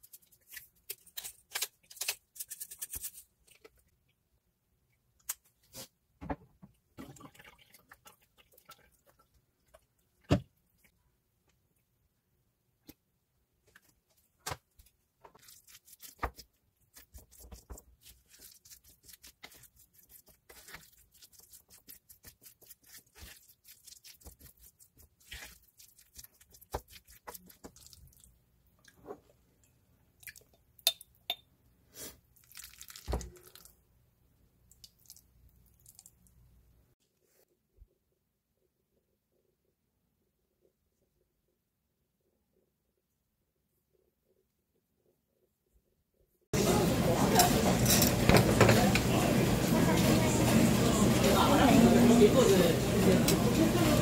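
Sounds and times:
wooden spoon mashing in bowl: 14.8s - 28.0s.

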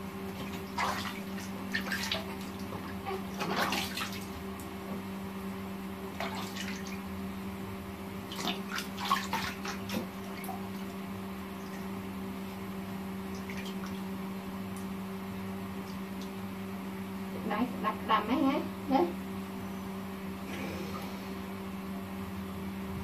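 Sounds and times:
steady low hum: 0.0s - 23.0s
water splashing in plastic tub: 0.3s - 4.8s, 6.2s - 7.1s, 8.2s - 11.0s.

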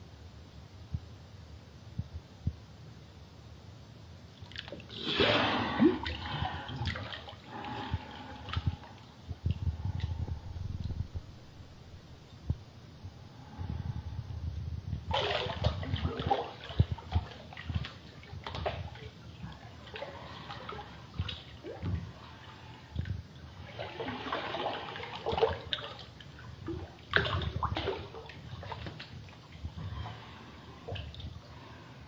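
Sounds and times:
bathtub water splashing: 4.4s - 10.2s, 15.1s - 31.6s.

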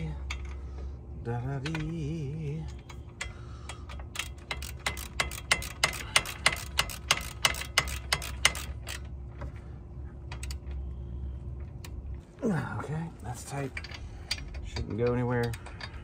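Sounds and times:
ratchet wrench clicking: 2.6s - 9.2s, 10.3s - 10.7s.

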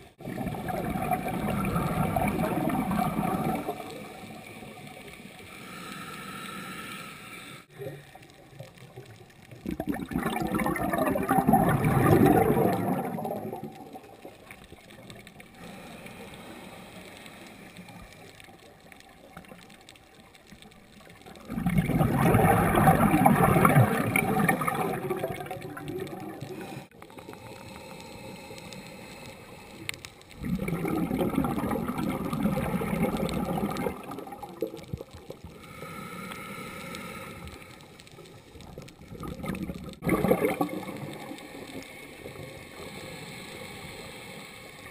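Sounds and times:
underwater bubbles gurgling: 0.0s - 6.6s, 7.7s - 44.9s
quiet regulator hiss: 3.1s - 9.6s, 12.5s - 21.5s, 26.2s - 31.0s, 31.6s - 39.6s.

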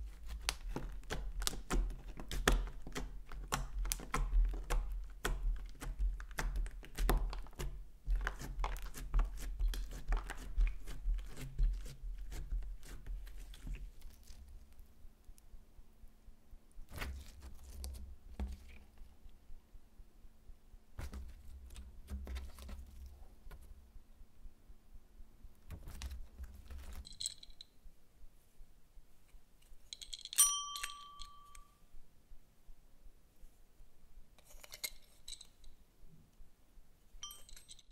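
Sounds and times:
slime squished by hand: 0.0s - 14.4s
desk call bell ringing: 30.4s - 31.8s.

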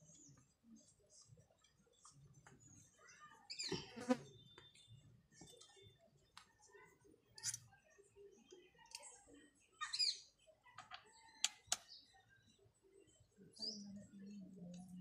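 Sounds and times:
bird chirping: 2.6s - 5.9s.

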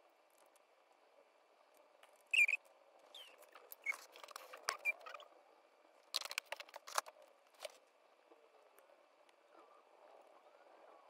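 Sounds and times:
short squeak: 2.3s - 5.2s
plastic parts clicking and tapping: 6.1s - 7.8s.

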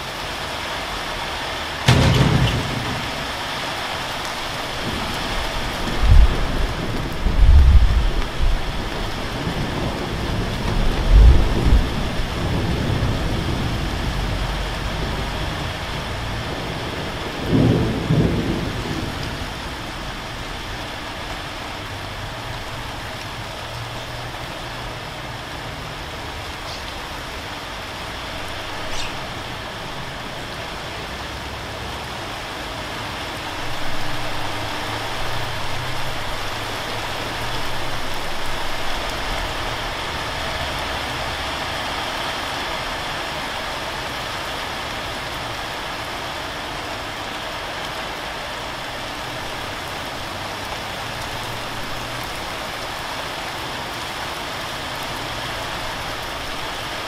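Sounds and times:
steady rain falling: 0.0s - 57.0s
thunder rumbling: 1.8s - 21.3s, 33.1s - 42.0s.

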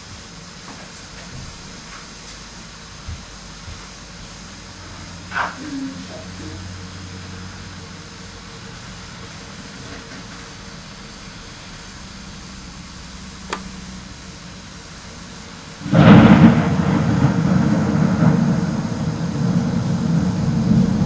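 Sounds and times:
thunder crack and rumble: 15.8s - 21.0s.

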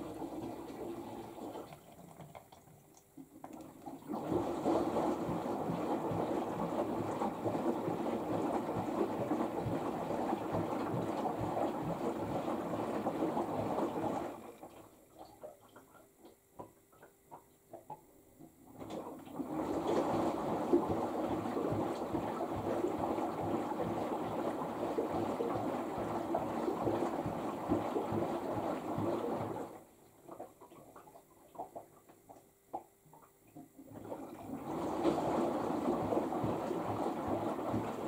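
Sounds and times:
washing machine sloshing water: 0.0s - 38.0s
faint drips and ticks: 1.5s - 4.0s, 14.4s - 18.6s, 30.0s - 33.9s.

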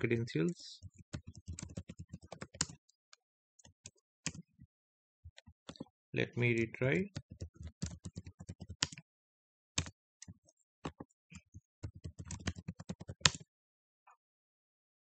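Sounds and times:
keyboard typing: 0.7s - 2.9s, 3.6s - 4.5s, 5.3s - 9.0s, 9.8s - 13.4s.

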